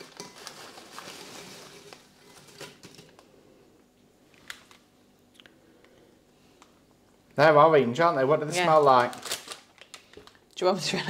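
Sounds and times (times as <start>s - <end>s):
foil packet rustling: 0.0s - 3.3s, 8.5s - 10.5s.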